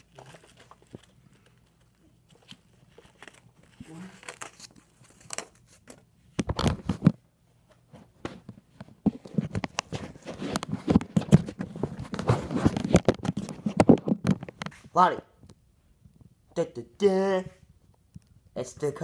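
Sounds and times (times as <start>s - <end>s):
plastic wrapping crinkling and tearing: 0.0s - 5.9s.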